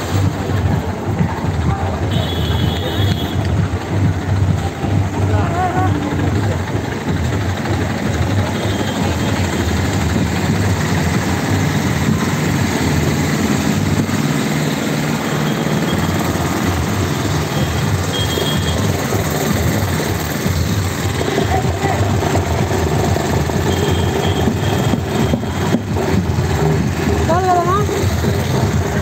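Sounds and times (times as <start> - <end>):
heavy engine rumbling: 0.0 - 29.0
loud broad noise: 0.0 - 29.0.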